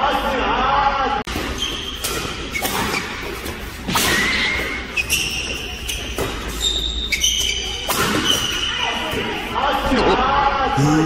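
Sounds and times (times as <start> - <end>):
shoes squeaking on court floor: 1.3 - 9.4.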